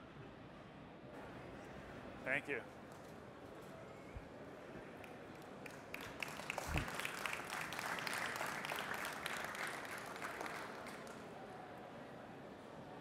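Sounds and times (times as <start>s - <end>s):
audience applauding: 5.0s - 11.3s.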